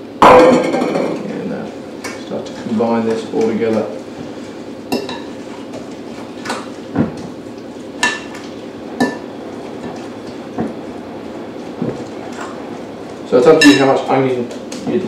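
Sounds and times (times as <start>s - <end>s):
utensil clinking against glass bowl: 13.6s - 14.0s.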